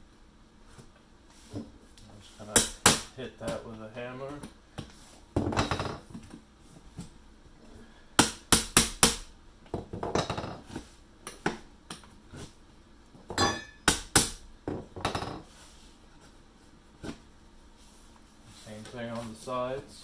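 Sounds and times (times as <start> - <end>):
hammer striking metal tool: 13.4 - 14.4.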